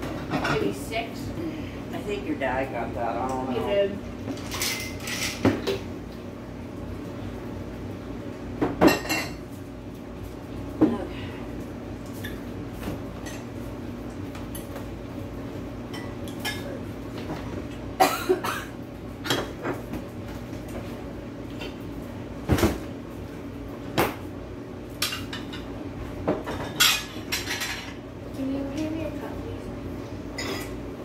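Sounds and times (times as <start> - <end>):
dishes and cutlery clinking: 4.3 - 5.8, 26.4 - 28.0, 30.4 - 30.8.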